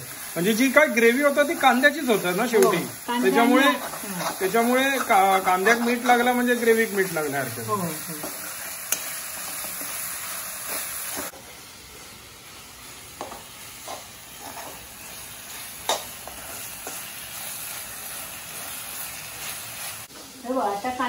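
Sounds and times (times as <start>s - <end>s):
onions sizzling in oil: 0.0s - 21.0s.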